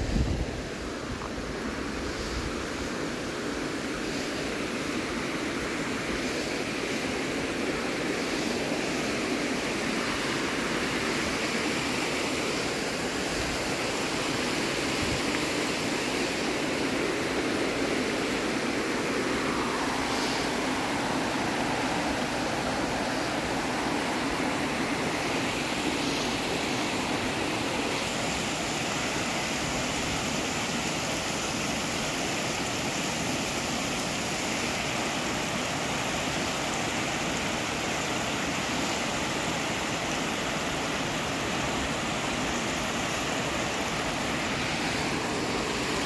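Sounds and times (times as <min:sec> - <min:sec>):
mountain stream rushing: 0:00.0 - 0:46.0.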